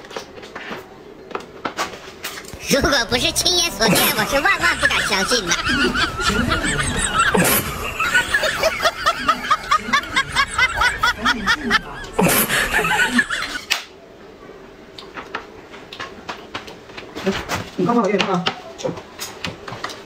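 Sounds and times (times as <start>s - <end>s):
background music: 2.5s - 13.6s
rapid snickering laughter: 2.6s - 13.8s.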